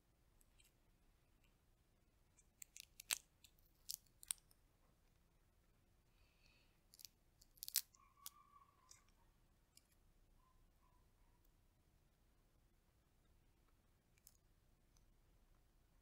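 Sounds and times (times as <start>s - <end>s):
chestnut shells cracking: 2.6s - 4.5s, 6.9s - 9.0s.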